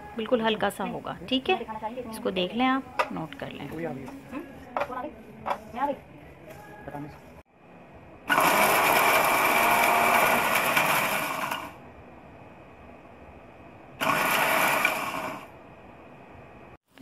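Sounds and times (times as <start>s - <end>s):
electric spice grinder: 8.3s - 11.7s, 14.0s - 15.5s.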